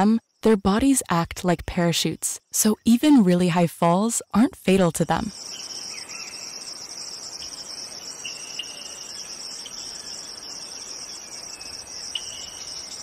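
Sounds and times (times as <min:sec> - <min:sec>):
insects trilling: 0:05.1 - 0:13.0
short insect chirps: 0:05.3 - 0:13.0.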